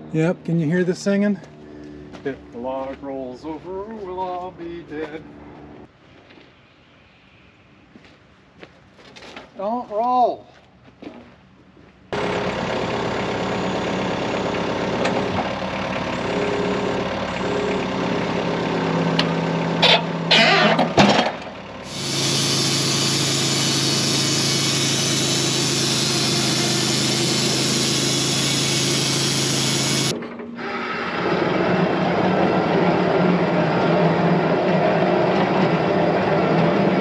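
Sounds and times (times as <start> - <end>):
band saw cutting log: 12.2 - 37.0
sawmill engine running: 12.2 - 37.0.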